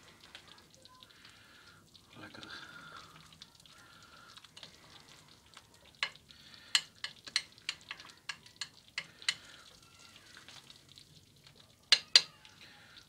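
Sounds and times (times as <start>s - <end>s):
sauce bubbling: 0.0s - 13.0s
metal spoon scraping dish: 11.9s - 12.3s.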